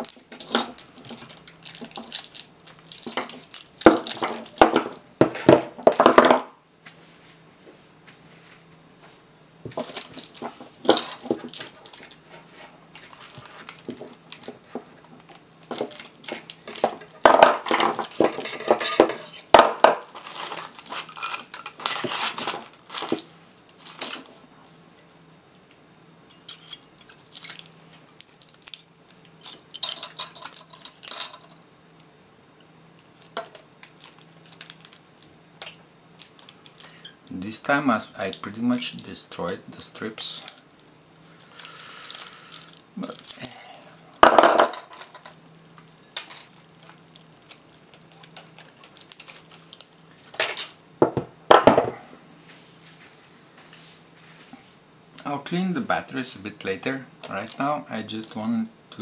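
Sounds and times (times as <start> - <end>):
pliers clinking on metal strips: 15.3 - 19.5, 25.6 - 31.5
metal cells knocking on tabletop: 44.2 - 45.3.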